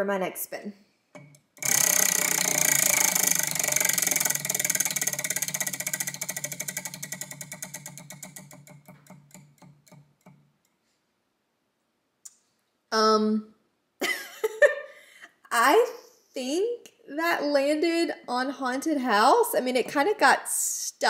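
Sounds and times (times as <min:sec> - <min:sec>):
prize wheel clicking: 0:01.2 - 0:10.4.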